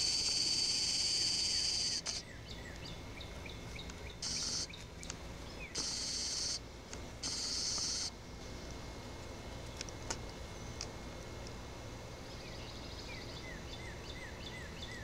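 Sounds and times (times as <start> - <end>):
high-pitched buzzing hiss: 0.0 - 2.3, 4.2 - 4.8, 5.7 - 8.7
bird chirping: 0.0 - 6.6, 12.2 - 15.0.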